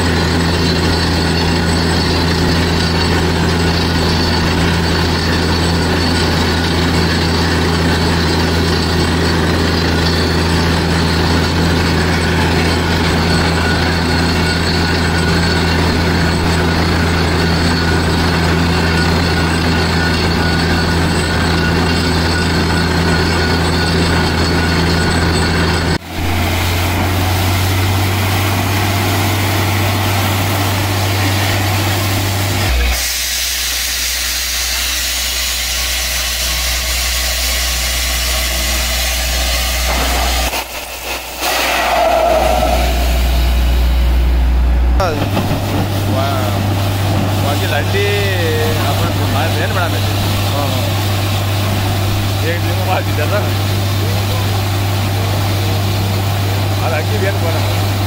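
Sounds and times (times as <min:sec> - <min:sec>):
drilling rig engine drone: 0:00.0 - 0:58.0
air hissing from borehole: 0:26.1 - 0:44.2.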